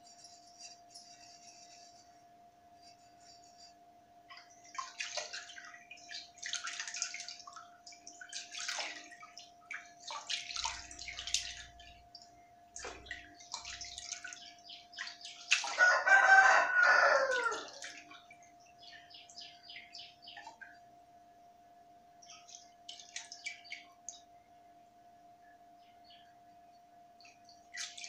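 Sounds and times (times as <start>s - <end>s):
water splashing in basins: 4.3s - 18.4s, 22.3s - 24.2s, 27.2s - 28.0s
rooster crowing: 15.7s - 18.0s.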